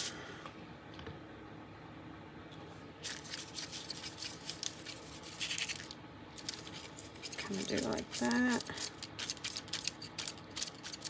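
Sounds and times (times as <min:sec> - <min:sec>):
paper rustling and crackling: 0:03.0 - 0:11.0.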